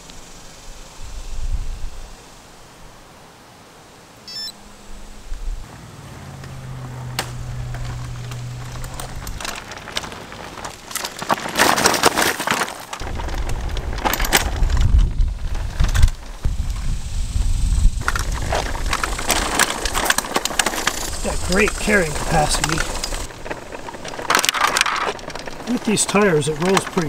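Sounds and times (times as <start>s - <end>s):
smartwatch beep: 4.3s - 4.6s
cart wheels rattling on pavement: 5.7s - 27.0s.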